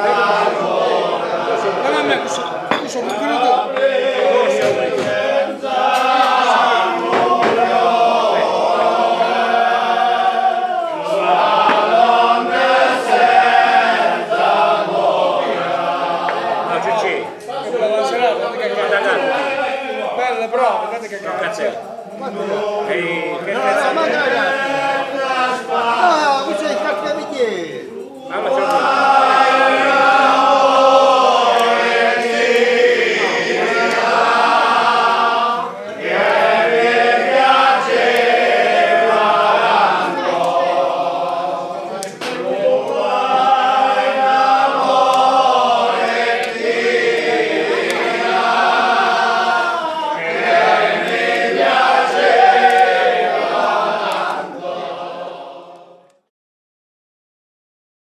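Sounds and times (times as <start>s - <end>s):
group singing unaccompanied: 0.0s - 56.3s.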